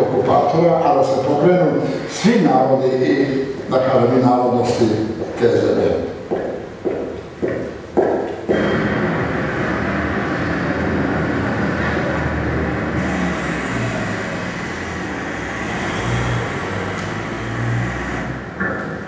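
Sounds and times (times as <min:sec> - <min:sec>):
city street traffic: 0:07.9 - 0:19.0.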